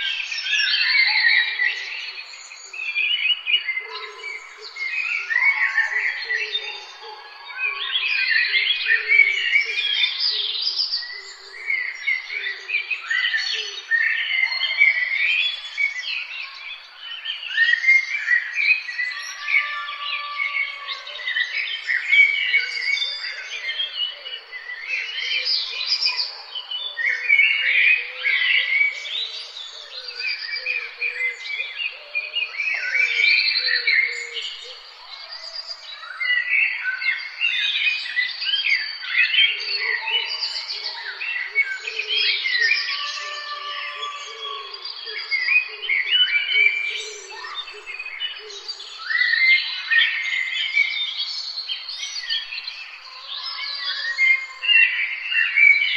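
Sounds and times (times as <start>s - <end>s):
songbirds singing and chirping: 0.0s - 55.9s.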